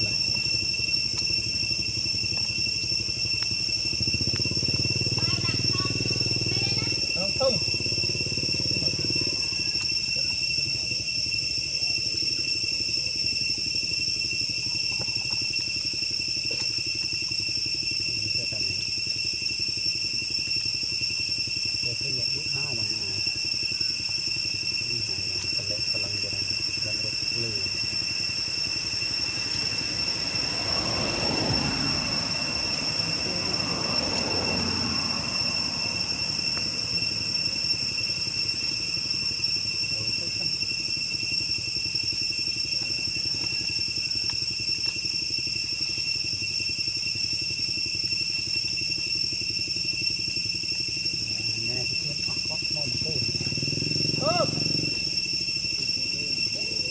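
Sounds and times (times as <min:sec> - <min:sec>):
high-pitched insect drone: 0:00.0 - 0:56.9
small engine idling: 0:01.0 - 0:56.9.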